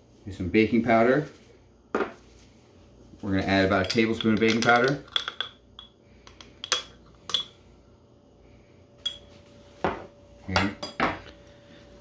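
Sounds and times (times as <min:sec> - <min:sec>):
faint steady hum: 0:00.0 - 0:12.0
utensils clinking against bowl: 0:03.5 - 0:07.6, 0:09.0 - 0:09.4, 0:10.5 - 0:11.3.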